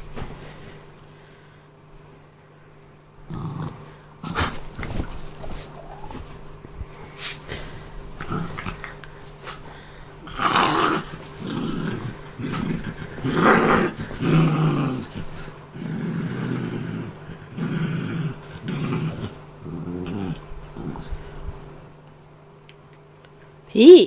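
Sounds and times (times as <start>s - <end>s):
small dog growling: 3.2s - 6.4s, 7.6s - 21.4s.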